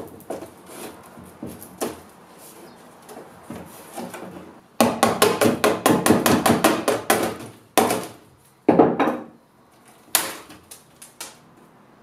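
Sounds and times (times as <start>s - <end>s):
knocks on wooden panel: 4.8s - 8.1s, 8.7s - 9.3s.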